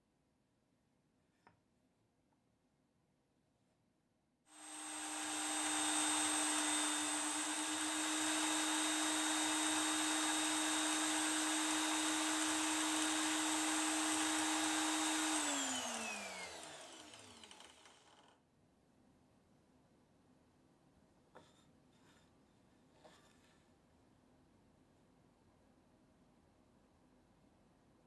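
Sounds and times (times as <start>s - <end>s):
electric drill whining: 4.5s - 18.4s.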